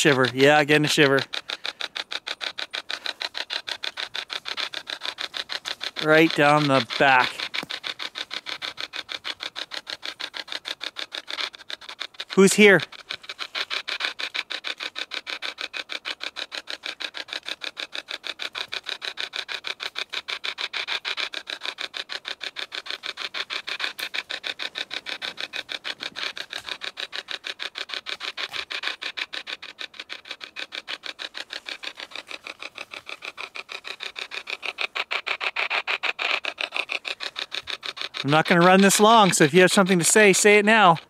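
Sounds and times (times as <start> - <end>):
choppy radio static bursts: 6.0 - 7.4, 38.3 - 41.0.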